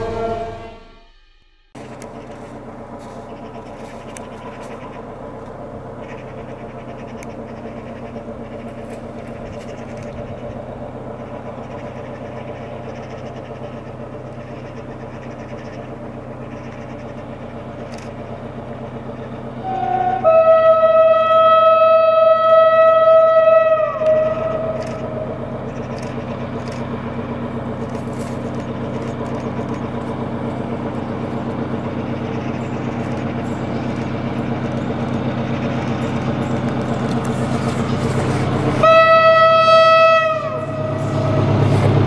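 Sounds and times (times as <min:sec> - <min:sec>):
locomotive horn long blast: 0:00.0 - 0:01.4, 0:19.4 - 0:26.2, 0:32.0 - 0:42.0
diesel locomotive engine running: 0:00.0 - 0:42.0.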